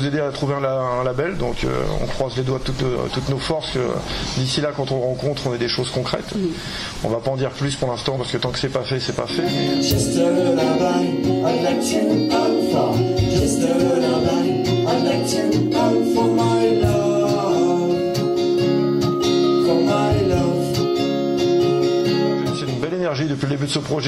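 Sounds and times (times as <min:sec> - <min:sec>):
woman and man singing: 0:09.3 - 0:18.5, 0:19.5 - 0:21.0
strummed acoustic guitar: 0:09.4 - 0:22.8.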